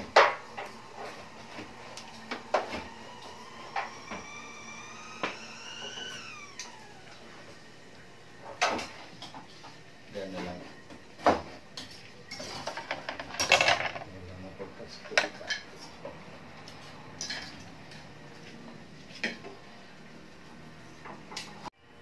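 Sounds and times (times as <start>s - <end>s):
hard parts clattering and knocking: 12.3s - 14.1s.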